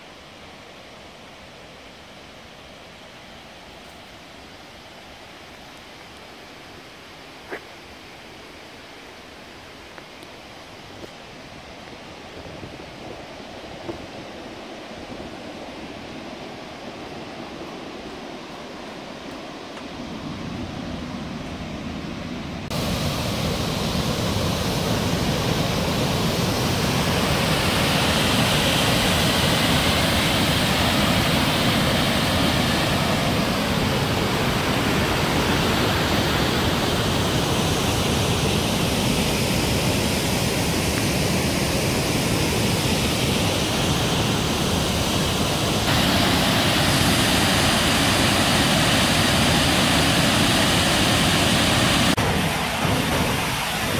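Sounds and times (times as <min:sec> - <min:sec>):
waterfall rushing: 0:22.6 - 0:53.9.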